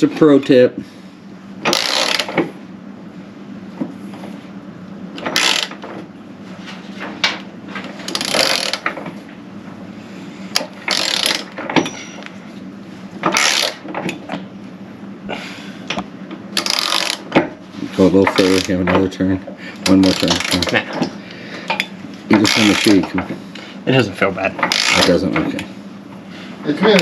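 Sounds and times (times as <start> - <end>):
hand ratchet clicking: 1.7 - 2.3, 5.2 - 5.8, 8.1 - 8.9, 10.6 - 11.5, 13.3 - 13.8, 16.6 - 17.2, 24.6 - 25.1.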